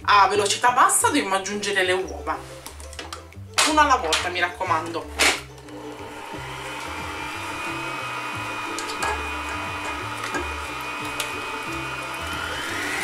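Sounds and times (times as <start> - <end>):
background music: 0.0 - 13.0
stand mixer motor whining: 5.6 - 13.0.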